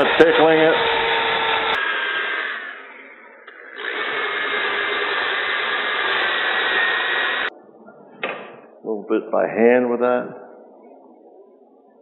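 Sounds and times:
power drill sanding wood: 0.0s - 2.9s, 3.5s - 7.5s.

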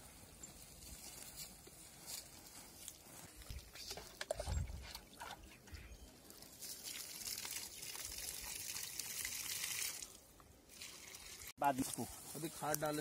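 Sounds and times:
water pouring onto soil: 6.2s - 13.0s.

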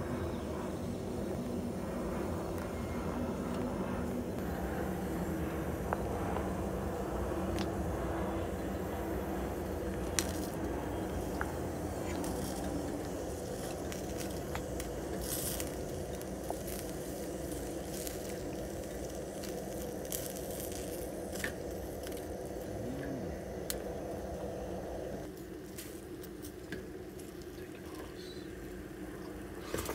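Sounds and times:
gas burner rumbling: 0.0s - 29.9s
small clicks and crackles: 9.9s - 22.7s.

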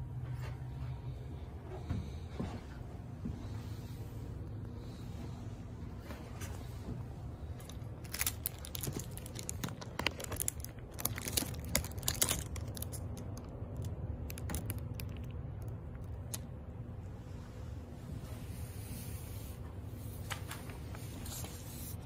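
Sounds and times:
steady low hum: 0.0s - 22.0s
handling clicks and rustles: 6.1s - 16.6s.

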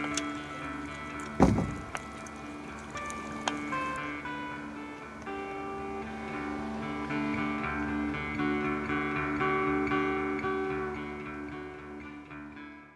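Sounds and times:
solo guitar plucking a melody: 0.0s - 12.9s.

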